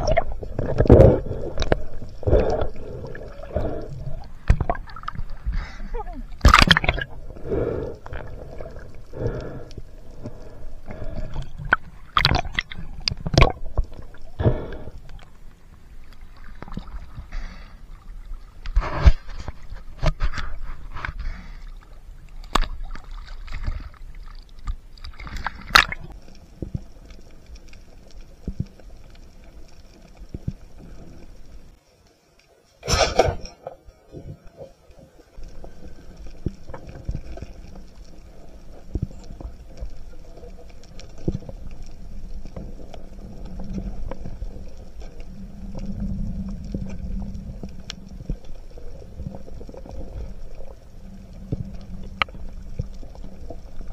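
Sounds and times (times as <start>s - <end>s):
water splashing: 0.0s - 14.9s, 15.9s - 26.8s
water sloshing and gurgling: 0.0s - 31.8s, 32.8s - 53.9s.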